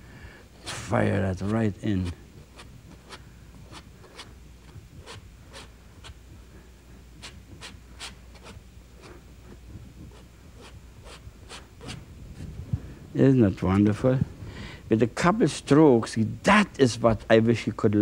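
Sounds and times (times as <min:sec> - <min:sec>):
painting tool strokes on canvas: 0:00.6 - 0:06.2, 0:07.2 - 0:12.0.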